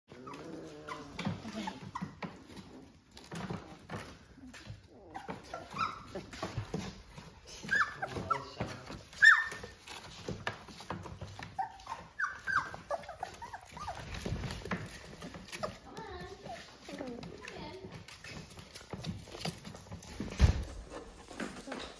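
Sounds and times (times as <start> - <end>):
puppies whimpering and yipping: 0.1 - 3.3, 4.5 - 17.7
soft scuffling: 0.3 - 21.9.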